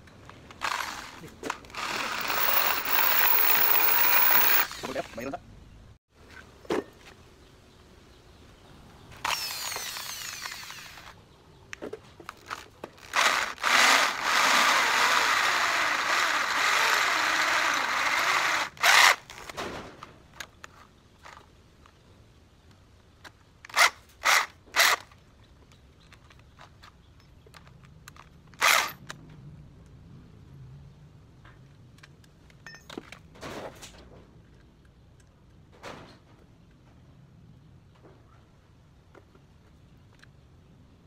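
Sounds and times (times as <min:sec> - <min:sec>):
electric drill boring into metal: 0:00.6 - 0:05.0, 0:09.2 - 0:11.1, 0:13.0 - 0:19.2.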